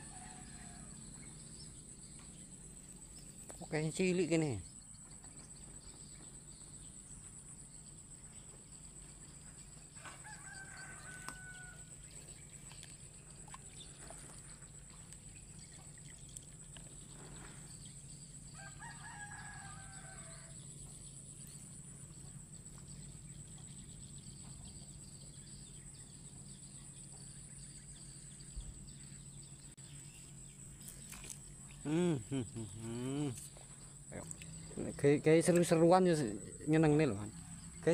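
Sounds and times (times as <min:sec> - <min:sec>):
faint rooster crowing: 0:00.0 - 0:01.2, 0:10.0 - 0:12.0, 0:18.5 - 0:20.7.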